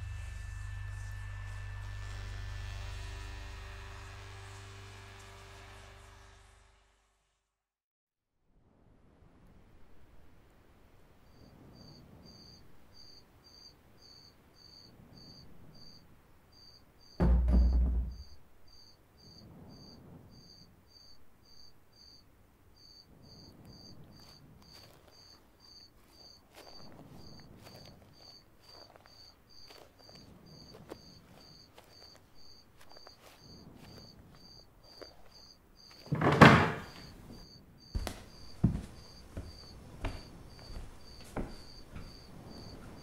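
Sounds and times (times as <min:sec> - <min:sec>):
crickets chirping: 0:11.2 - 0:43.0
wooden door opening: 0:36.0 - 0:37.2
faint rustling: 0:36.8 - 0:43.0.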